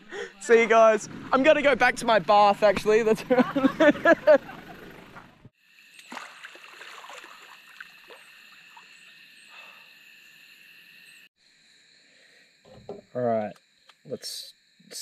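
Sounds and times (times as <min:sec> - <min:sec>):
frogs and insects chorus: 0:05.6 - 0:15.0
faint water splashes: 0:06.0 - 0:08.9.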